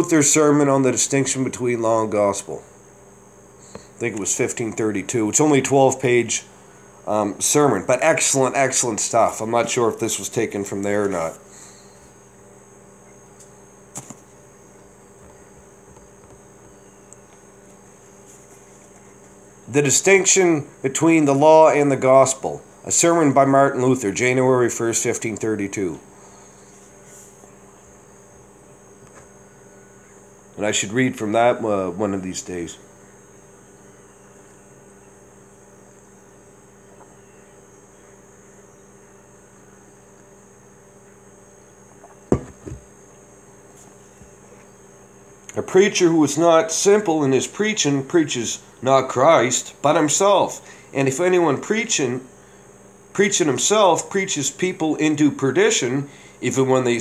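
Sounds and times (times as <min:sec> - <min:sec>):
faint high whine: 0:00.0 - 0:57.0
low electrical hum: 0:00.0 - 0:57.0
mug set down on desk: 0:42.3 - 0:42.9.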